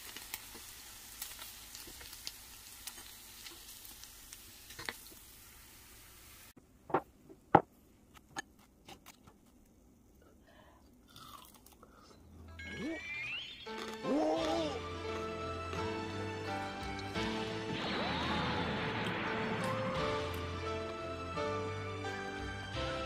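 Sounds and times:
oil sizzling and popping: 0.0s - 6.6s, 15.0s - 22.0s.

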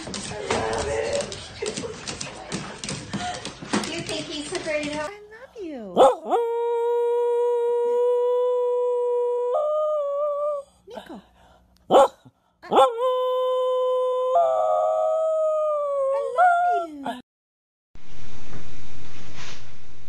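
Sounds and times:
dog howling: 6.0s - 10.6s, 12.7s - 17.2s.

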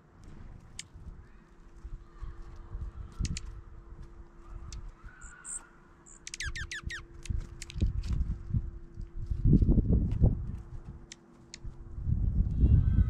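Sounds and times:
high thin bird calls: 4.4s - 7.1s.

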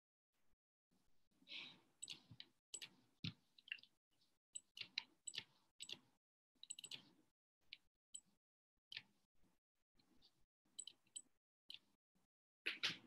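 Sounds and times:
mouse and keyboard clicks: 2.0s - 3.9s, 4.6s - 8.3s, 10.8s - 11.9s.

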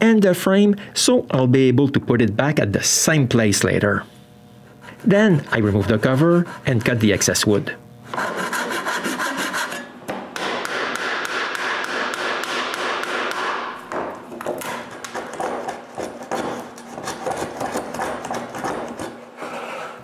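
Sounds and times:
hand saw cutting wood: 4.8s - 7.2s, 8.1s - 9.9s, 14.6s - 20.0s
chisel scraping and tapping wood: 14.4s - 20.0s.

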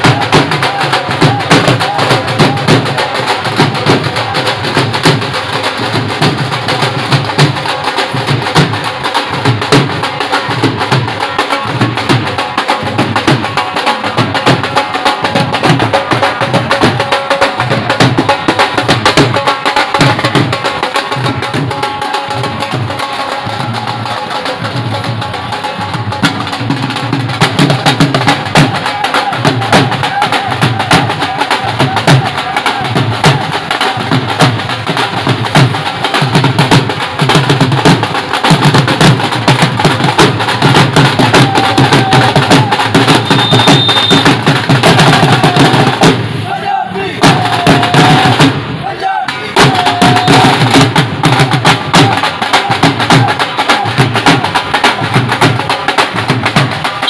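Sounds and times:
barrel drums played with sticks: 0.0s - 46.4s, 47.2s - 57.0s.

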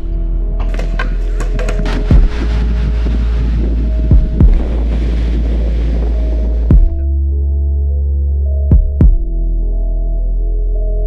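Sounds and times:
deep bass line: 1.8s - 11.0s
kick drum pitch dropping: 8.7s - 9.3s.

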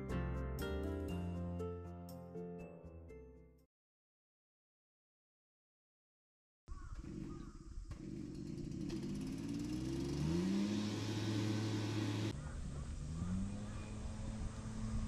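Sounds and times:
vehicle engine speeding up: 8.0s - 15.0s.

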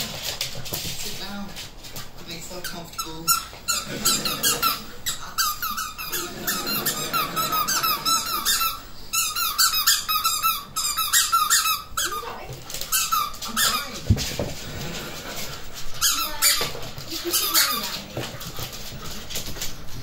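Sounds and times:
squeaky dog toy squeaking: 3.0s - 14.0s, 16.0s - 18.0s.

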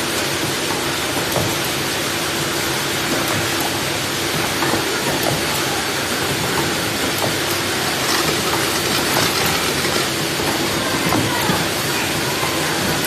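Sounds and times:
machine clicks and clacks: 4.4s - 11.3s
packing machine din: 6.3s - 11.9s.

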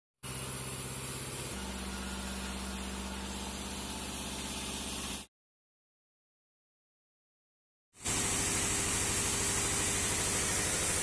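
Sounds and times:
bandsaw machinery running: 0.2s - 5.3s, 8.0s - 11.0s.

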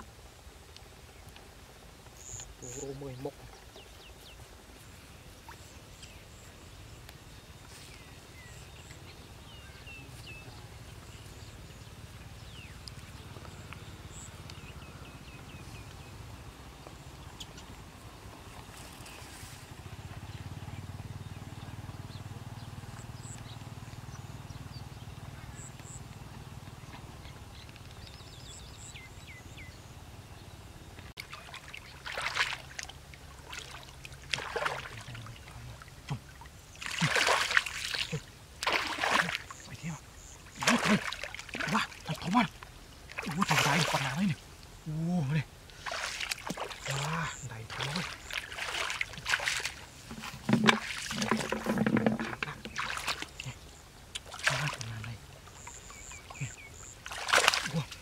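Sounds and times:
hands splashing in muddy water: 31.2s - 35.5s, 36.1s - 39.6s, 40.5s - 42.5s, 43.1s - 44.4s, 45.8s - 53.6s, 54.2s - 55.0s, 56.1s - 58.0s.

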